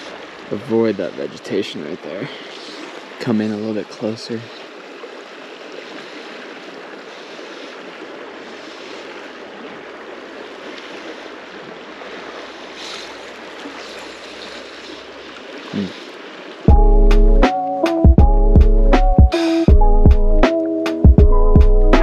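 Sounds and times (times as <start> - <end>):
water rushing over rocks: 0.0 - 16.7
loud music: 16.7 - 22.0.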